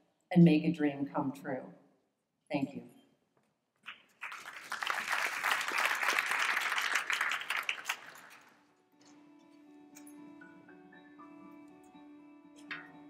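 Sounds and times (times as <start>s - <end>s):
audience applauding: 3.9s - 8.6s.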